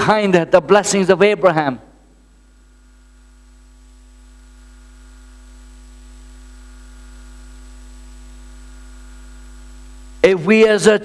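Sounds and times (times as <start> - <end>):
low electrical hum: 0.0 - 11.0
faint hiss: 4.1 - 10.4.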